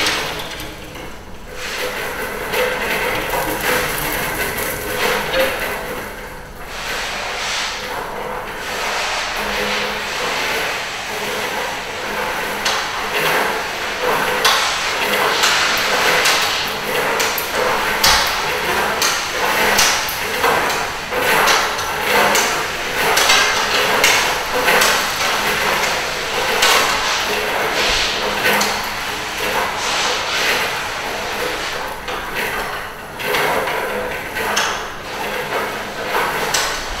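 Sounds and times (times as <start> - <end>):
metal springs scraping and knocking: 0.0 - 11.6.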